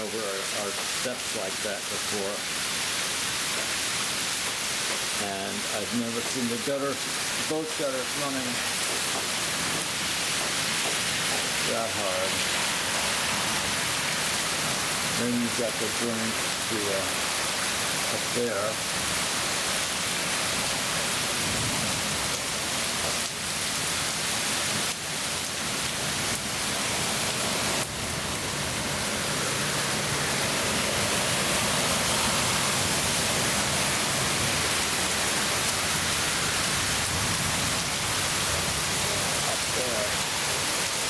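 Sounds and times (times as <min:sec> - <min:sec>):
heavy rain: 0:00.0 - 0:41.0
runoff water pouring: 0:00.0 - 0:41.0.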